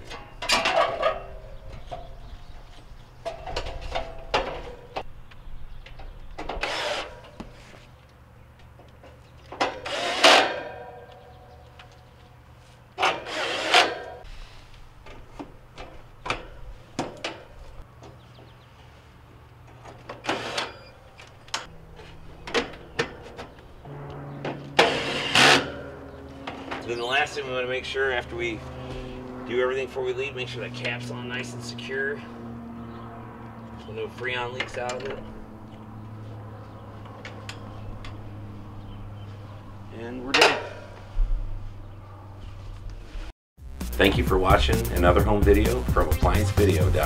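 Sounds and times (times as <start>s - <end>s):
metal panels clanking: 0.0s - 5.1s, 19.7s - 27.7s, 40.2s - 41.0s
cordless drill driving screws: 6.6s - 7.2s, 9.7s - 10.6s, 13.0s - 14.0s, 20.2s - 20.8s.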